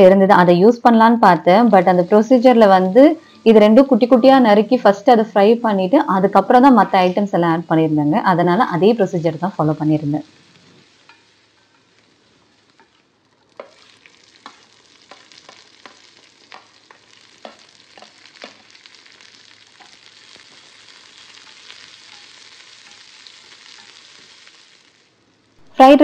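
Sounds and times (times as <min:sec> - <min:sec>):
vegetables sizzling in pan: 0:00.0 - 0:26.0
spatula taps and scrapes: 0:13.6 - 0:18.7.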